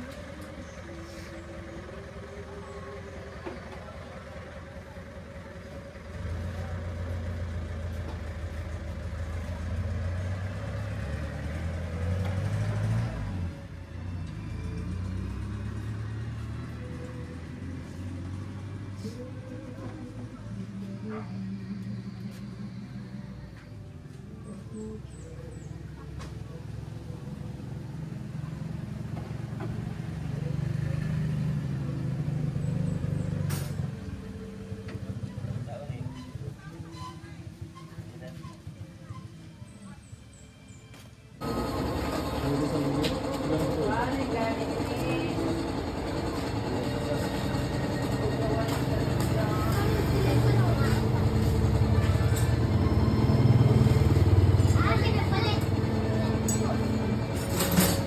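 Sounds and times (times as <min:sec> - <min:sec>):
engine humming: 0:00.0 - 0:58.0.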